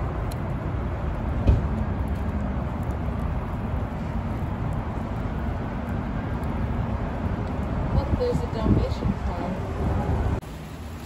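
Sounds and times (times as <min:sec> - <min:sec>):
low outdoor rumble: 0:00.0 - 0:11.0
thump: 0:01.4 - 0:01.7.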